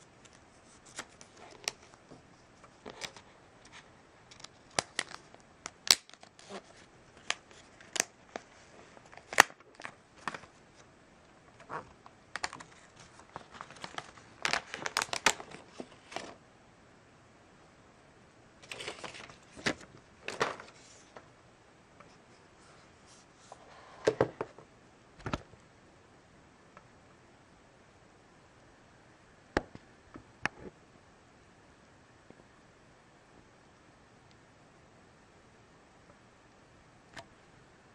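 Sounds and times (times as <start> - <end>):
plastic wrapping crinkling: 2.8 - 10.6, 11.6 - 16.4, 18.6 - 21.2.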